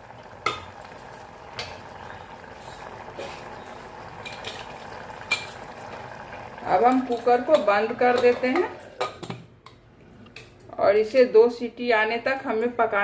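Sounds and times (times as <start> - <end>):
curry bubbling: 0.0 - 9.8.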